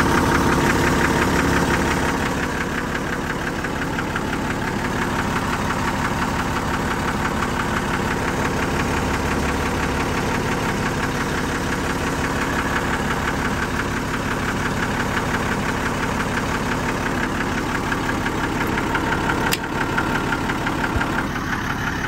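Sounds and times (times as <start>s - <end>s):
diesel engine idling: 0.0s - 22.0s.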